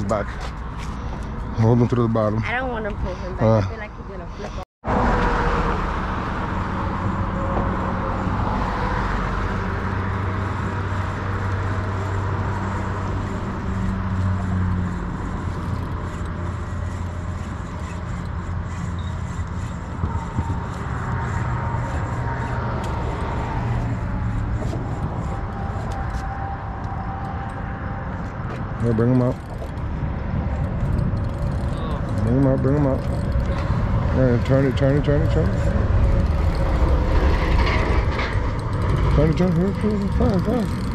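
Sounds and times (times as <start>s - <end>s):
cars passing on a bridge: 0.0s - 40.9s.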